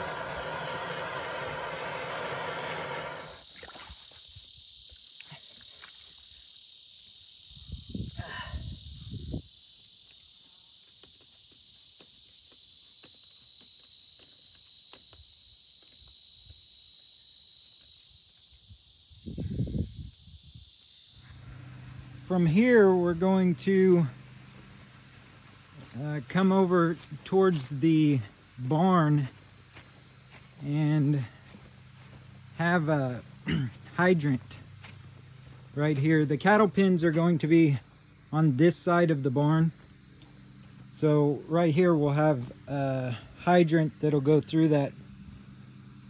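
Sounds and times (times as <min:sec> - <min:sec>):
wavering buzz: 0:00.0 - 0:03.9, 0:18.2 - 0:46.0
insects buzzing: 0:00.0 - 0:46.0.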